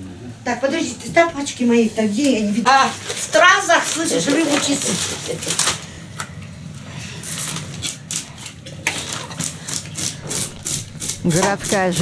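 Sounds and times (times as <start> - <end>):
knife scraping fish scales: 7.2 - 12.0.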